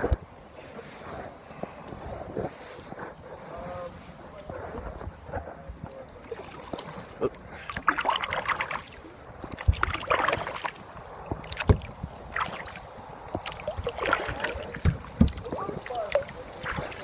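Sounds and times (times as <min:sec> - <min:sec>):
paddle splashing water: 0:00.0 - 0:17.0
dull thumps: 0:14.8 - 0:15.8.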